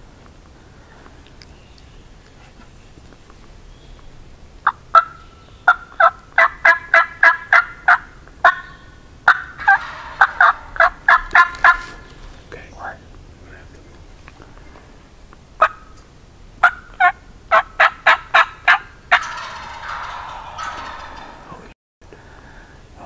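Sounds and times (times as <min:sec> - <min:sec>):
turkey call yelps: 0:04.6 - 0:12.2, 0:15.6 - 0:16.0, 0:16.6 - 0:21.6.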